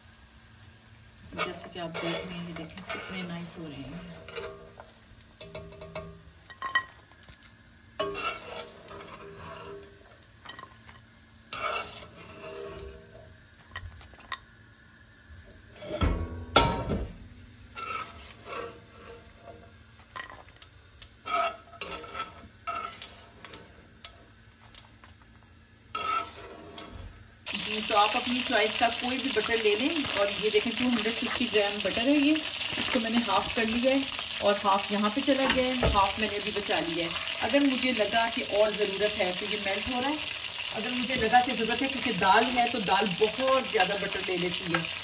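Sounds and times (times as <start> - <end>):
oil sizzling: 0.0 - 45.0
metal spoon scraping a wok: 1.3 - 4.8, 8.0 - 13.3, 15.6 - 16.2, 17.7 - 20.5, 21.2 - 24.3, 25.8 - 31.1
wok knocking on burner grate: 16.0 - 17.3.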